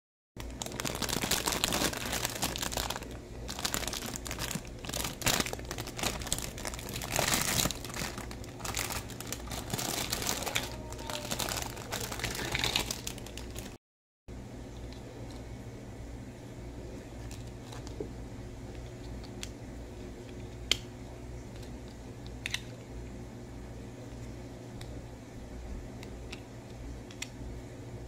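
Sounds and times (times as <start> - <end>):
plastic bag crinkling: 0.4 - 13.8, 17.2 - 18.1.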